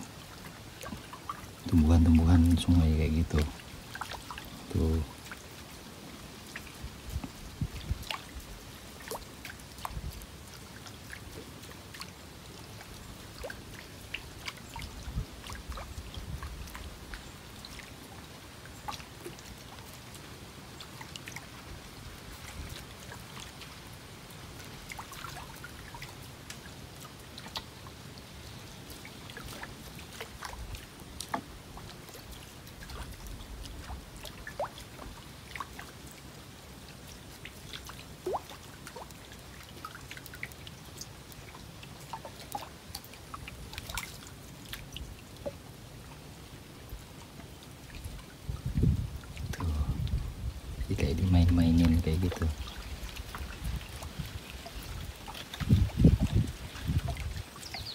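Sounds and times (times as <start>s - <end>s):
small water splashes: 0.0s - 57.9s
soft low rumbles: 48.1s - 54.4s.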